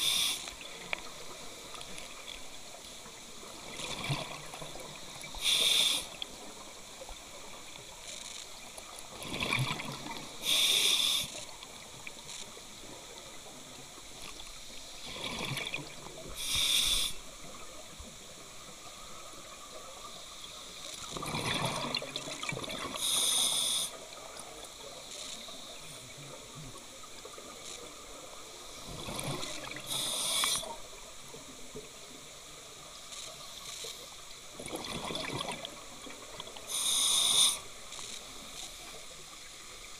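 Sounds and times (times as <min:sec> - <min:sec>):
regulator air hiss: 0:00.0 - 0:00.6, 0:05.3 - 0:06.2, 0:10.4 - 0:11.4, 0:16.3 - 0:17.3, 0:23.0 - 0:24.0, 0:29.8 - 0:30.8, 0:36.6 - 0:37.8
exhaled bubbles rumbling underwater: 0:21.2 - 0:23.0, 0:34.5 - 0:36.7.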